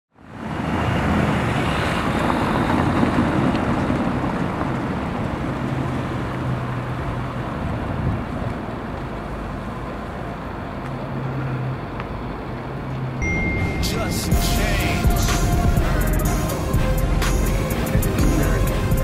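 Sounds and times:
street traffic noise: 0:00.1 - 0:19.0
car engine running: 0:13.8 - 0:19.0.

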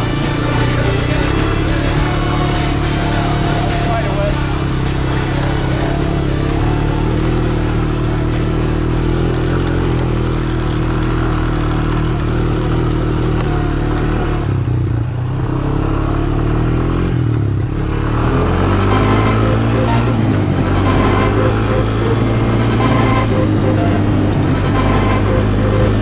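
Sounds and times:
quad bike engine running: 0:00.0 - 0:26.0.

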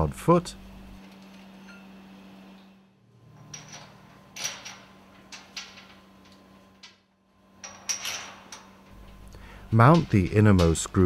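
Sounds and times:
steady low hum: 0:00.0 - 0:11.0
metallic clinks and knocks: 0:03.3 - 0:07.0.

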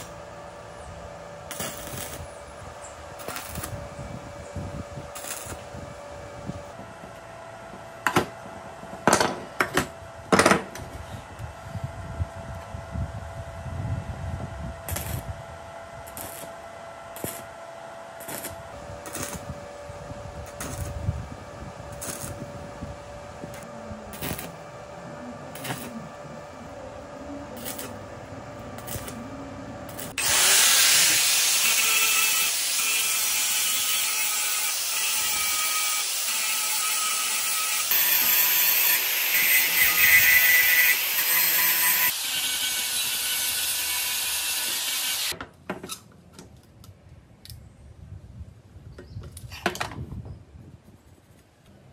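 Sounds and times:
low steady hum: 0:00.0 - 0:30.2
angle grinder grinding steel: 0:28.7 - 0:45.3.

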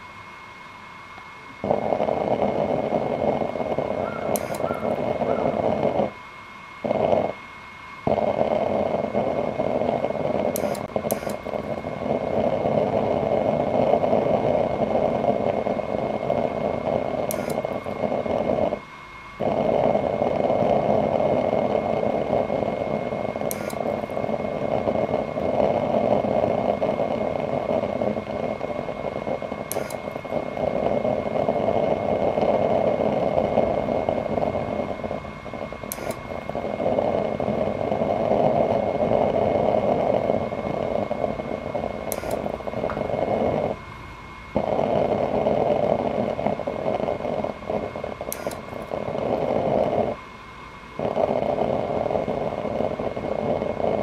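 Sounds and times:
blower fan whine: 0:00.0 - 0:54.0
rush of flame and air: 0:19.4 - 0:50.2.

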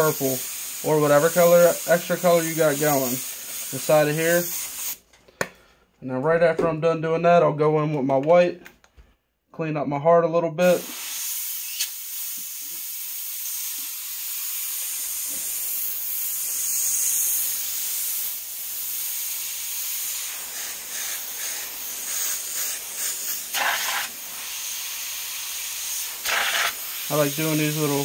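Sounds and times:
airbrush hissing: 0:00.0 - 0:05.0, 0:10.6 - 0:28.0
short airbrush bursts: 0:00.0 - 0:05.0, 0:10.6 - 0:28.0.

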